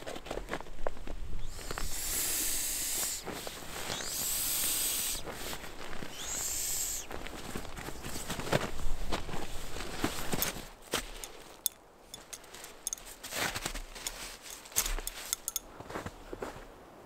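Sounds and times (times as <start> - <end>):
air hissing out of a valve: 1.4 - 7.1
fabric rustling: 7.1 - 11.6.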